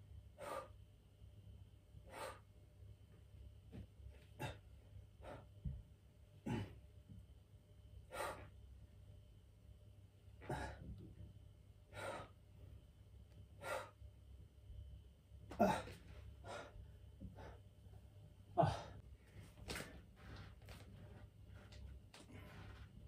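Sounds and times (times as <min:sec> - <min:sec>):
man breathing hard: 0:00.3 - 0:00.8, 0:02.0 - 0:02.5, 0:08.1 - 0:08.5, 0:11.9 - 0:12.4, 0:13.6 - 0:14.0, 0:15.6 - 0:17.6, 0:18.6 - 0:19.1.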